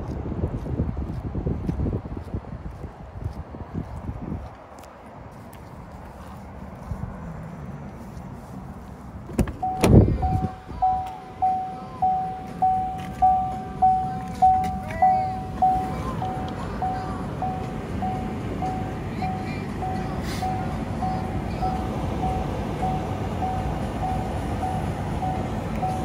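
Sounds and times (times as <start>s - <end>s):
faint music from car radio: 7.8s - 26.0s
car door warning chime: 9.5s - 26.0s.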